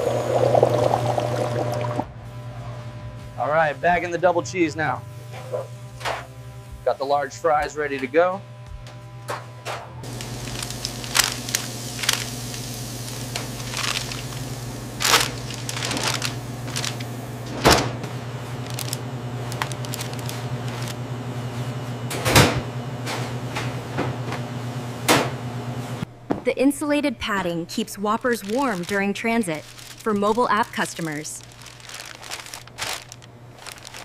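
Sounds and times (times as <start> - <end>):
kitchen equipment hum: 0.0 - 2.7, 9.3 - 34.0
paper wrapper rustling: 10.1 - 17.9, 18.6 - 21.0, 28.2 - 34.0.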